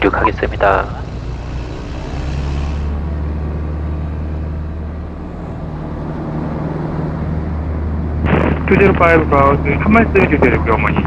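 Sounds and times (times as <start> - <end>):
light aircraft engine drone: 0.0 - 11.0.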